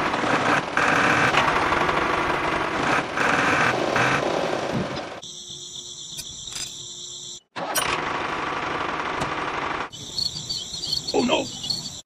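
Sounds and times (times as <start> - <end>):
insects trilling: 5.2 - 7.5, 9.9 - 12.0.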